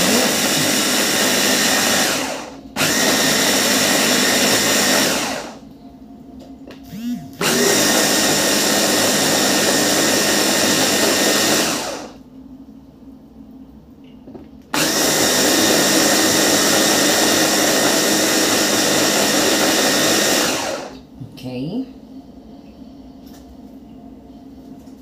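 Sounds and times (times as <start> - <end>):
electric hand blender running: 0.0 - 5.6, 6.9 - 12.2, 14.8 - 21.0.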